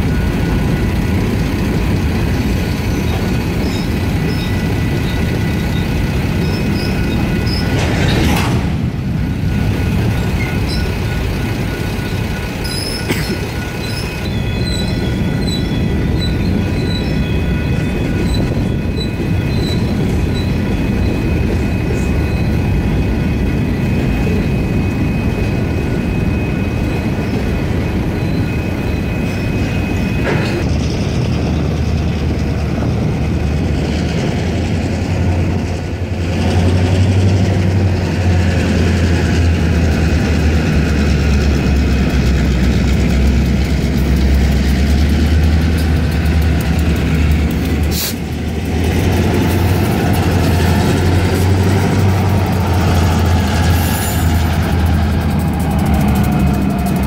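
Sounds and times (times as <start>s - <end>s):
diesel locomotive engine drone: 0.0s - 57.0s
train wheel squeal: 0.0s - 57.0s
crossing bells ringing: 9.3s - 30.7s.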